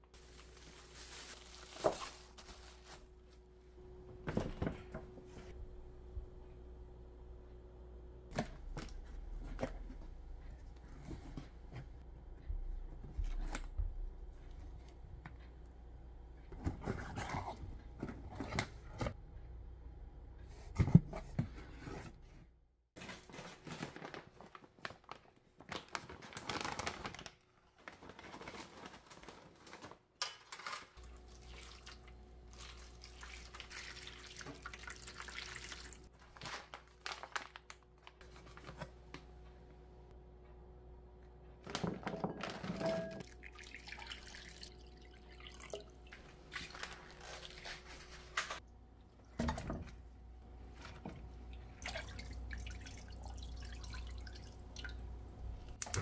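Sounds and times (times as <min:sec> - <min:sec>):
hands rummaging through potatoes: 0:00.0 - 0:03.4
plastic packaging crinkling: 0:00.0 - 0:03.4, 0:23.0 - 0:31.1, 0:36.2 - 0:38.8.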